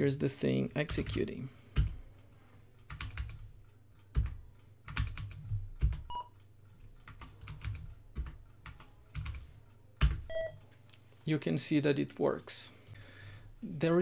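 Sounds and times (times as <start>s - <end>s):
keyboard keys clicking: 4.0s - 10.4s
short computer beep: 10.3s - 10.6s.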